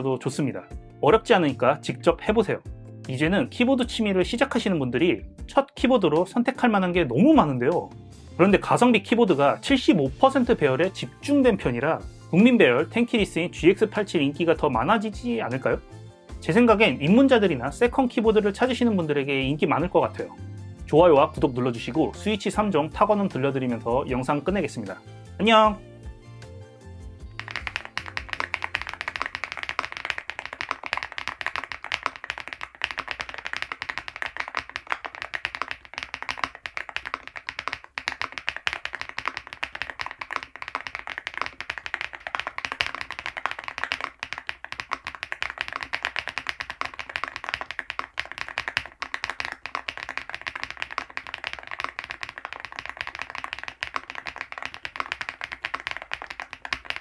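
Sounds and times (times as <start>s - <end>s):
fast typing on mechanical keyboard: 27.3s - 57.0s.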